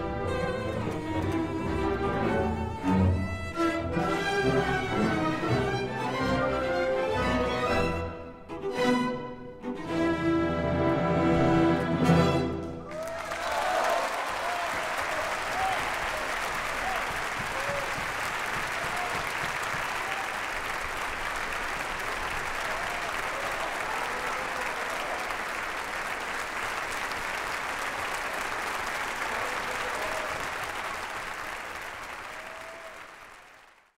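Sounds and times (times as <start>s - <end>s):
audience applauding: 12.6s - 34.0s.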